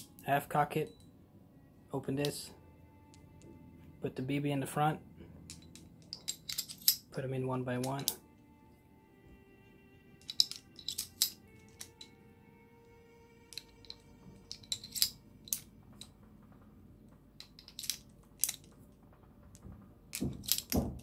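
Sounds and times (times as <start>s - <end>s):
metallic clicks of revolver loading: 10.2s - 12.2s, 13.4s - 16.1s, 17.4s - 18.7s.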